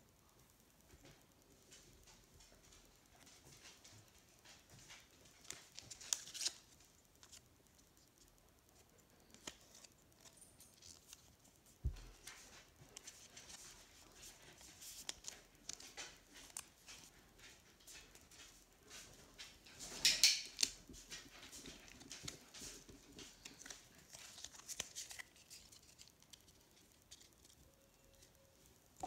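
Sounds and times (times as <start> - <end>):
trading cards flicking: 23.3 - 27.6.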